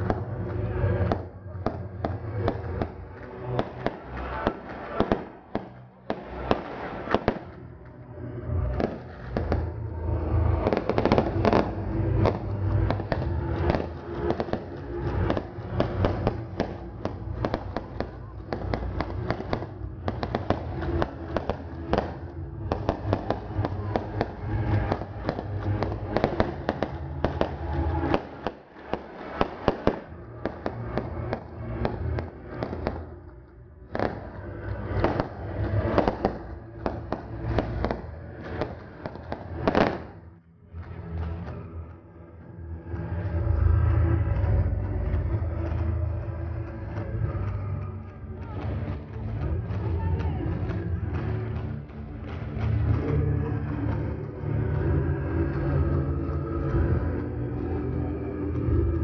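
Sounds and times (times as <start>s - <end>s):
fireworks bangs: 0.0s - 7.7s, 8.7s - 40.3s
crackling fireworks stars: 0.0s - 42.0s.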